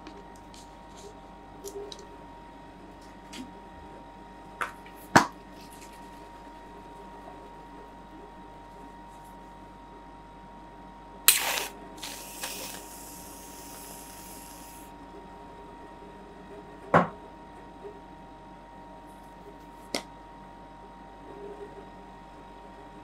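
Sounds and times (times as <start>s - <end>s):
aerosol can spraying: 11.3s - 14.9s.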